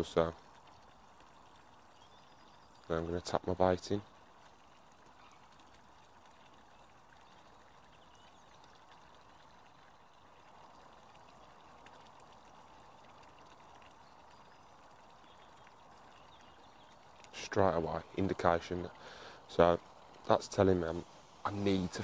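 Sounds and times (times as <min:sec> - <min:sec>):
faint ticks: 0:00.0 - 0:03.0, 0:04.0 - 0:17.4
outdoor background hiss: 0:00.0 - 0:22.0.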